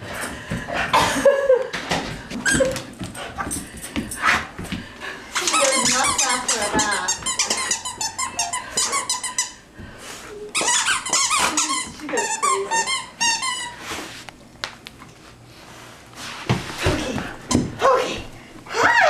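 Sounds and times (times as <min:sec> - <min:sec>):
squeaky toy squeaking: 0:05.4 - 0:09.6, 0:10.6 - 0:13.7.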